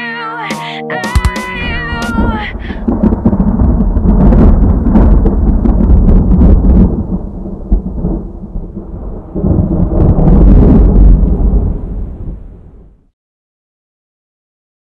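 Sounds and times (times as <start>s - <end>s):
rolling thunder: 1.6s - 13.1s.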